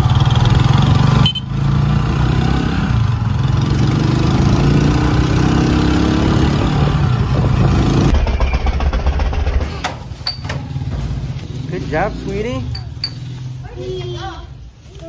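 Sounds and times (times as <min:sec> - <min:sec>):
vehicle engine running: 0:00.0 - 0:01.7.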